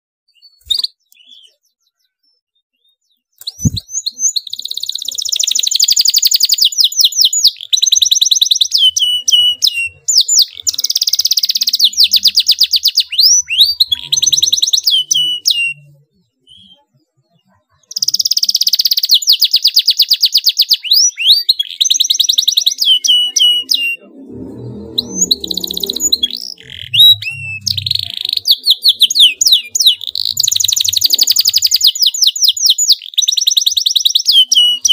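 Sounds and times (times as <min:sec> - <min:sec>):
canary singing trills: 0:00.3 - 0:34.9
faint low rumble: 0:24.0 - 0:28.4.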